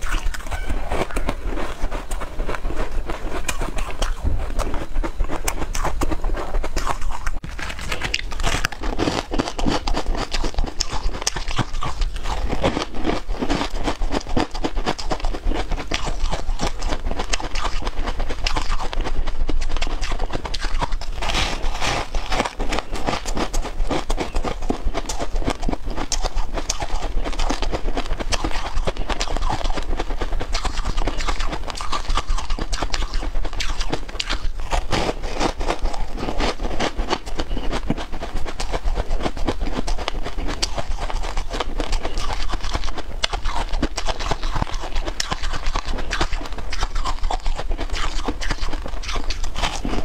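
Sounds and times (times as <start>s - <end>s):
chewing crunchy crisps: 0.0s - 50.0s.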